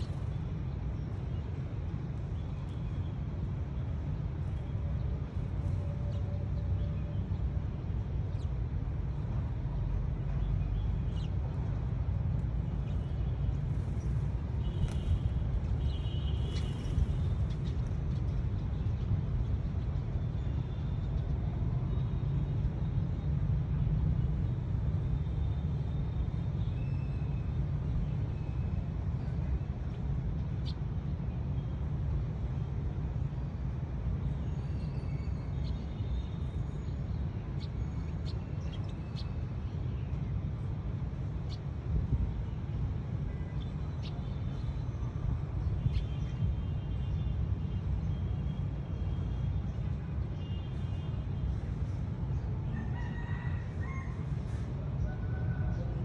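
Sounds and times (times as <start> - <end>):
sparrows chirping: 9.9 - 11.9, 12.6 - 22.2, 34.3 - 54.1.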